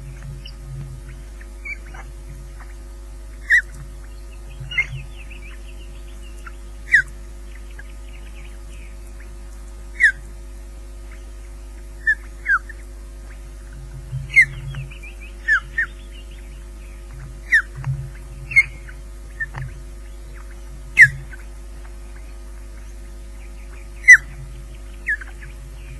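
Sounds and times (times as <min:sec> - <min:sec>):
low hum: 0:00.0 - 0:25.9
osprey whistling calls: 0:03.4 - 0:09.4, 0:10.0 - 0:10.2, 0:12.0 - 0:13.5, 0:14.3 - 0:21.5, 0:22.2 - 0:25.9.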